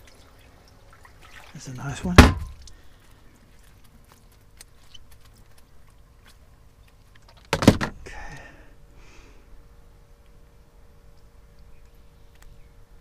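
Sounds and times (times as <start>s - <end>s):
faint steady hum: 0.0s - 13.0s
loud thump on boat deck: 2.1s - 2.6s
fish scuffing in a net: 2.5s - 7.5s.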